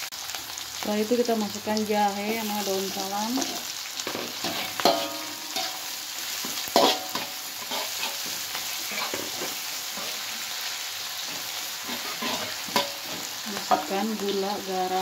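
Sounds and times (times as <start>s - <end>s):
vegetables sizzling in hot oil: 0.0s - 15.0s
metal spatula scraping a wok: 2.4s - 14.3s.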